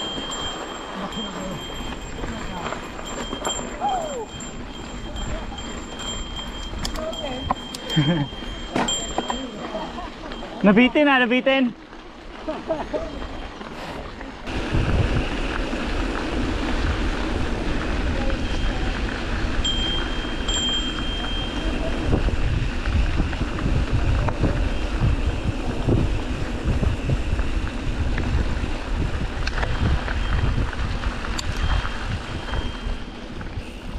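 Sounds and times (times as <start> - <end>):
wind buffeting microphone: 0.0 - 10.5, 14.1 - 33.9
thin high tone: 0.0 - 11.4.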